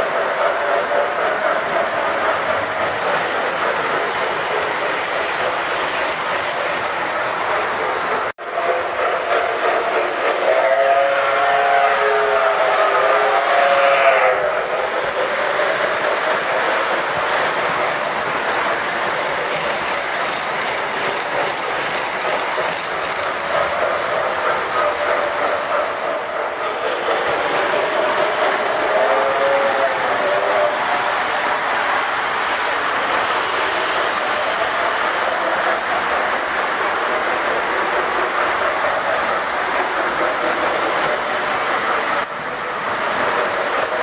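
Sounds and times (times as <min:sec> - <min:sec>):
model trains rumbling on track: 0:00.0 - 0:44.0
model train whistle: 0:10.3 - 0:14.6, 0:28.8 - 0:30.8.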